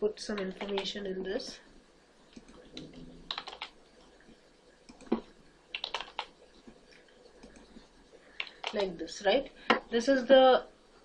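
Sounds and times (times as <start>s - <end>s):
keyboard keys clicking: 0.4s - 0.9s, 2.4s - 3.7s, 4.9s - 6.3s, 8.4s - 8.9s.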